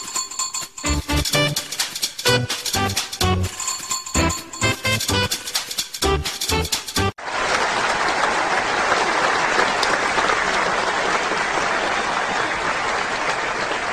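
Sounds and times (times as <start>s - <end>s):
music: 0.0s - 7.2s
crowd applause: 7.2s - 13.9s.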